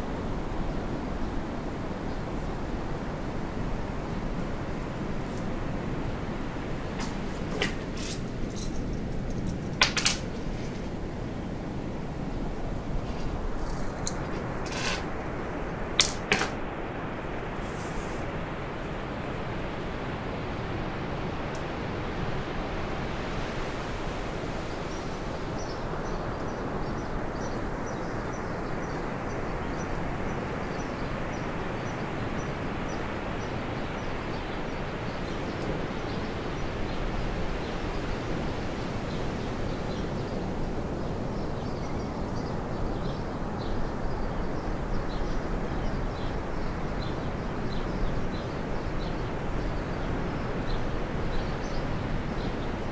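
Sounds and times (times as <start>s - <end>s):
steady rushing noise: 3.3s - 26.0s.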